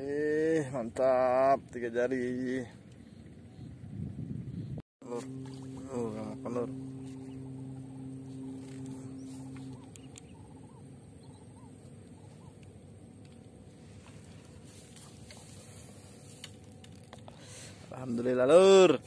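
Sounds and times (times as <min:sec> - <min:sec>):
steady low hum: 0:02.6 - 0:19.0
soft chirps: 0:05.1 - 0:13.0.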